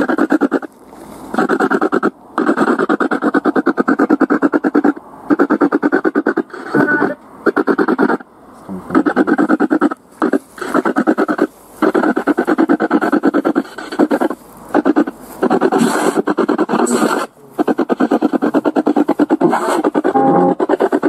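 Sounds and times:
radio static and broadcast fragments: 0:00.0 - 0:00.7, 0:06.4 - 0:21.0.

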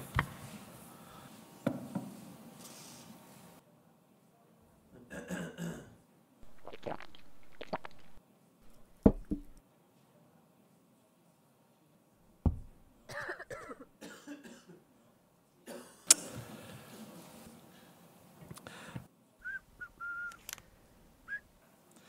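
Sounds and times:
microphone clicks: 0:06.4 - 0:09.6
low thump: 0:12.4 - 0:12.8
man coughing: 0:13.1 - 0:14.8.

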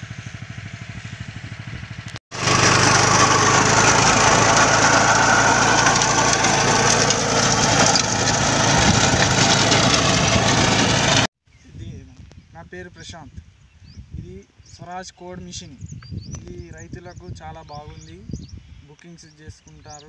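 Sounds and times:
tractor engine running: 0:00.1 - 0:11.3
rotavator churning dry soil: 0:02.3 - 0:11.3.

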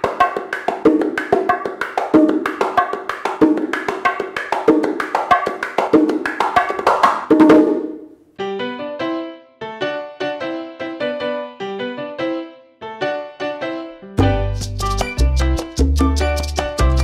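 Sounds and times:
bongos played by hand: 0:00.0 - 0:08.0, 0:14.2 - 0:17.0
deep open bongo tone: 0:00.0 - 0:08.0.

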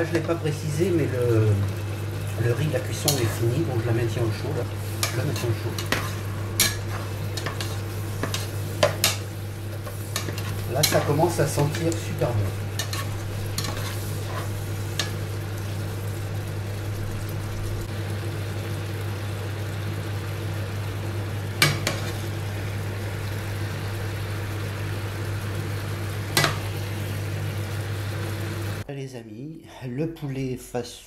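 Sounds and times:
food sizzling in a pot: 0:00.0 - 0:28.9
spoon stirring: 0:04.9 - 0:15.2.

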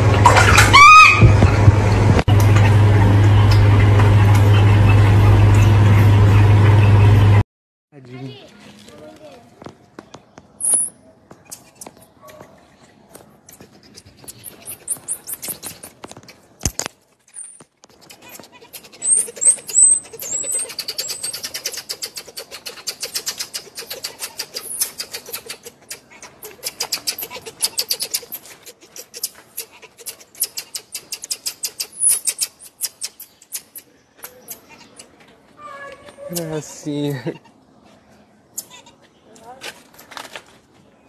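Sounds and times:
baby marmoset chirping: 0:10.6 - 0:12.0, 0:13.5 - 0:15.9, 0:17.3 - 0:36.7.

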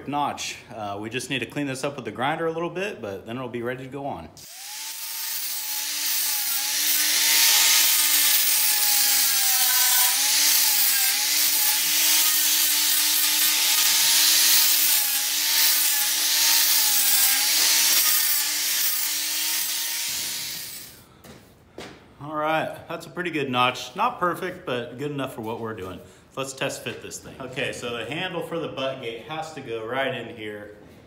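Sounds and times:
angle grinder motor whine: 0:04.4 - 0:21.0.

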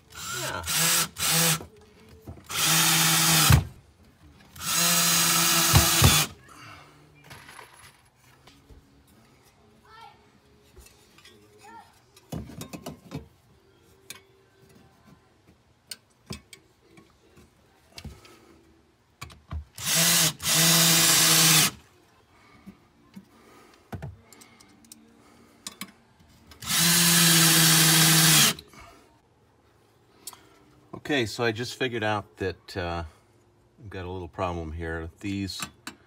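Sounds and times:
cordless drill driving screws: 0:00.1 - 0:01.6, 0:02.5 - 0:03.7, 0:04.6 - 0:06.4, 0:19.8 - 0:21.8, 0:26.6 - 0:28.6.

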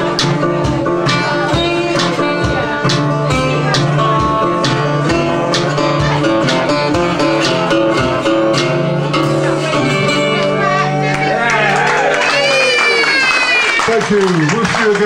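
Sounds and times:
steady drum beat: 0:00.0 - 0:10.6
electric guitar: 0:00.0 - 0:13.9
bass: 0:00.0 - 0:15.0.

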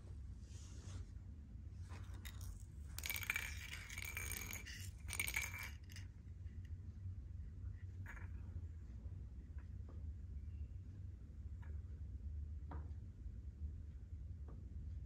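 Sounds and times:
small object rolling on tile floor: 0:01.8 - 0:06.6.

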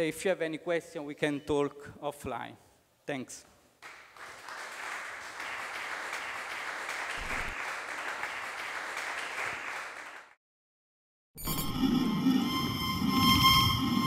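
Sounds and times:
audience applauding: 0:03.8 - 0:10.4.

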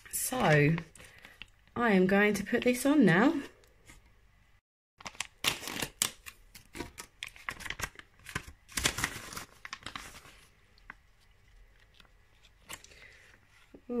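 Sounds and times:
sachet crinkling and tearing: 0:05.0 - 0:13.0.

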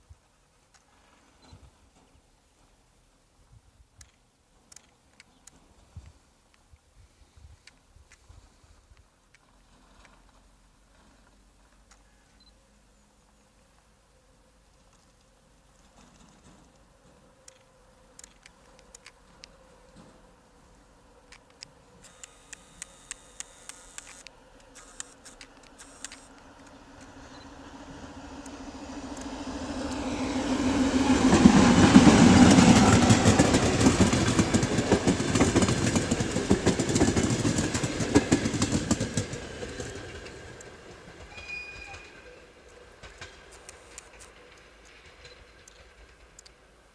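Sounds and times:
diesel locomotive engine drone: 0:16.4 - 0:46.9
train wheels clattering over rail joints: 0:31.3 - 0:42.1, 0:42.8 - 0:46.8.

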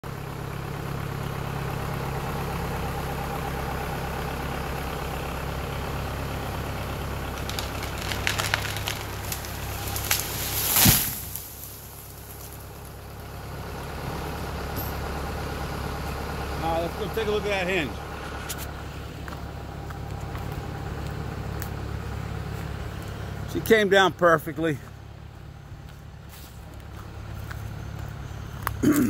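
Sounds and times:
engine idling: 0:00.0 - 0:29.0
tree trunk cracking: 0:06.5 - 0:14.0
tree crashing to ground: 0:06.9 - 0:13.7.

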